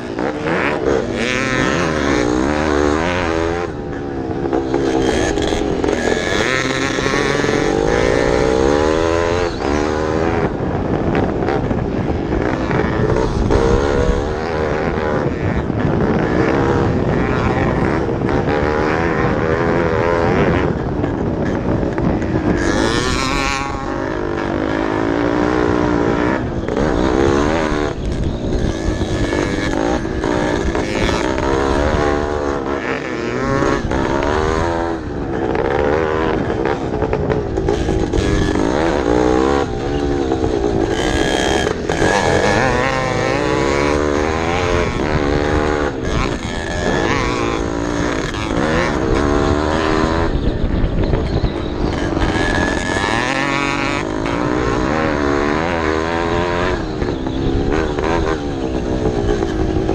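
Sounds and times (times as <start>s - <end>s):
motocross bike engines revving: 0.0s - 59.9s.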